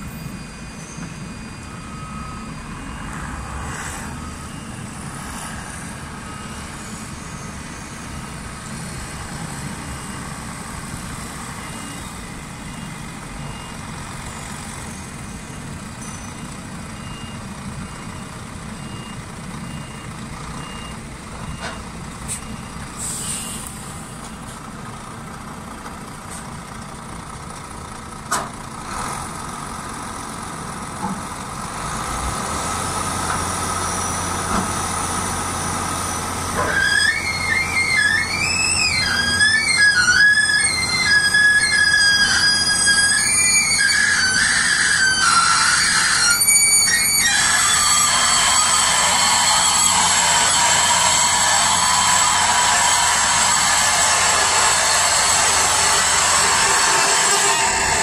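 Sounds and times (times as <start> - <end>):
high-pitched squeal: 0.0 - 17.2, 33.1 - 58.0
reversing alarm beeping: 0.0 - 24.6, 35.8 - 58.0
diesel truck engine: 0.0 - 58.0.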